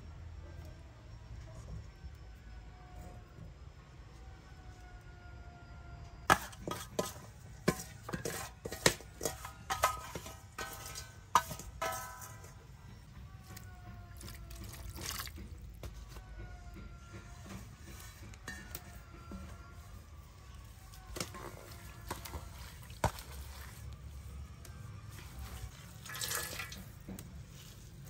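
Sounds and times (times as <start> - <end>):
water splashing and dripping: 14.2 - 15.8, 21.2 - 24.0, 25.1 - 28.0.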